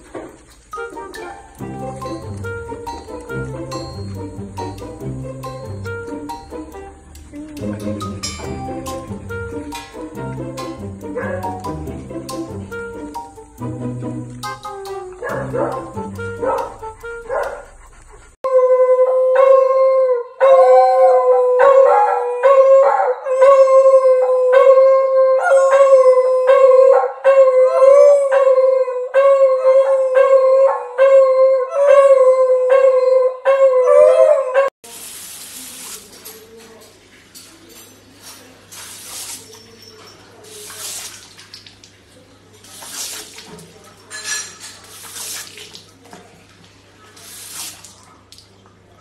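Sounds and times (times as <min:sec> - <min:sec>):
dogs howling: 0:14.8 - 0:34.7
shower spray hissing: 0:34.8 - 0:36.6, 0:38.1 - 0:43.8, 0:44.6 - 0:46.0, 0:47.1 - 0:48.2.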